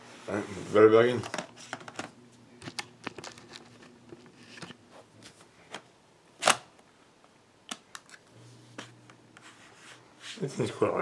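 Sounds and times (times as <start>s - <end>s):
plastic clicks and rustles: 1.2s - 4.8s, 7.7s - 8.3s.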